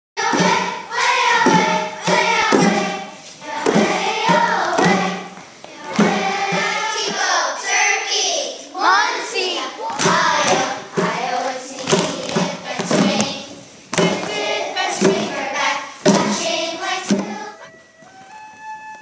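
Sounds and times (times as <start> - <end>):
children singing in unison: 0.2 - 17.7
sharp thumps: 0.3 - 7.2, 9.9 - 17.6.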